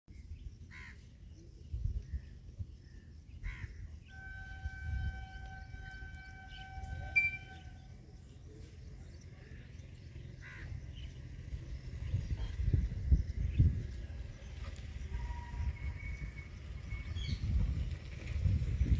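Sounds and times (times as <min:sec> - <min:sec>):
crows cawing: 0:00.7 - 0:01.0, 0:10.4 - 0:10.7
distant locomotive horn: 0:04.0 - 0:08.4, 0:14.8 - 0:17.4.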